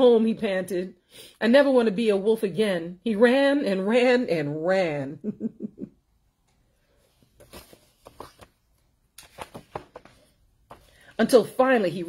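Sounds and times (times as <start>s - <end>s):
paper rustling: 7.0s - 11.4s
book pages turning: 7.1s - 11.1s.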